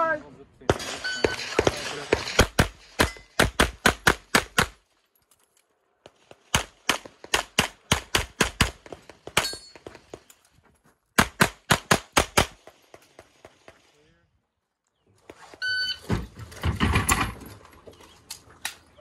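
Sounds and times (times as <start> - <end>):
pistol firing rapid shots: 0.7 - 4.8, 6.5 - 9.5, 11.2 - 12.7.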